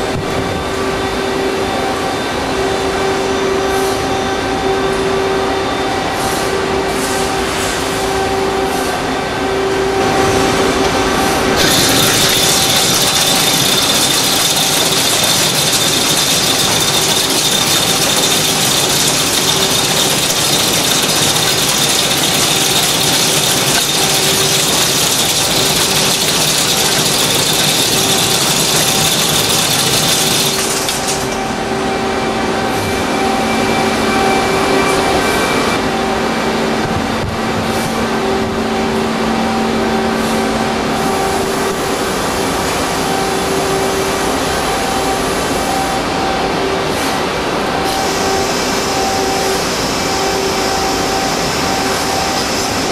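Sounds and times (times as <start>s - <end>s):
lathe humming: 11.4s - 32.0s.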